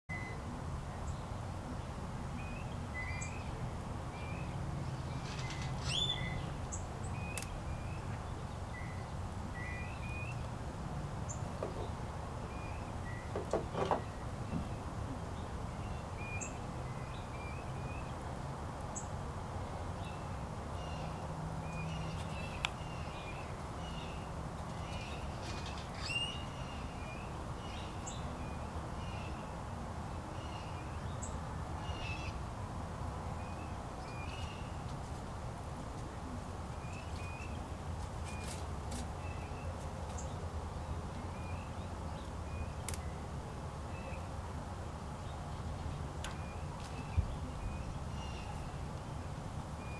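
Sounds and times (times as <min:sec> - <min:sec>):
birds chirping: 0:02.4 - 0:10.6, 0:11.2 - 0:18.2, 0:19.0 - 0:29.6.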